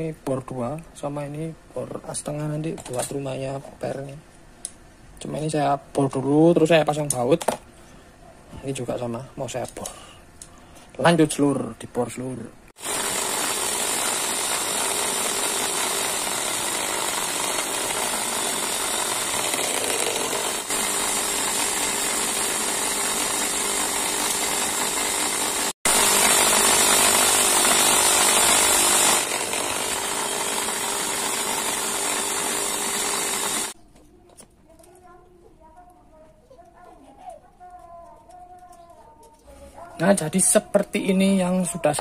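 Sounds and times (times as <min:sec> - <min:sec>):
drill press drilling metal: 0:12.8 - 0:33.8
motor hum: 0:12.8 - 0:33.8.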